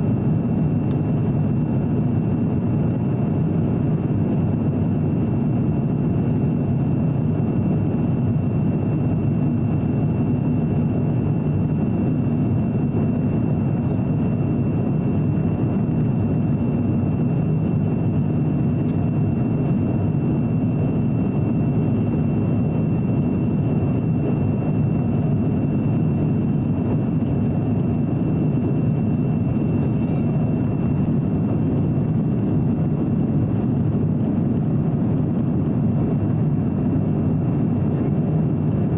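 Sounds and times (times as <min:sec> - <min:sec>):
airflow rushing in cabin: 0:00.0 - 0:38.9
jet engine noise: 0:00.0 - 0:38.9
thin high whine: 0:15.2 - 0:32.0.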